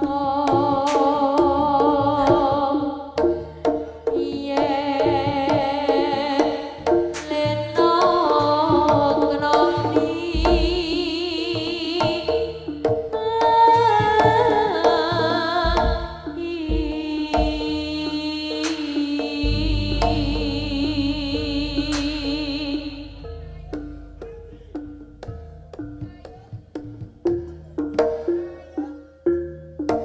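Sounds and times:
drums and pitched percussion: 0.0 - 30.0
wavering lead melody: 19.4 - 26.0
gamelan music: 19.4 - 30.0.

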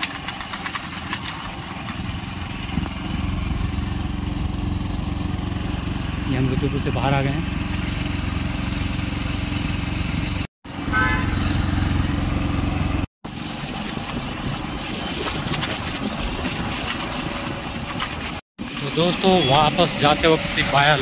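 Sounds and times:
motorcycle engine running: 0.0 - 13.1
road and wind noise: 0.0 - 21.0.

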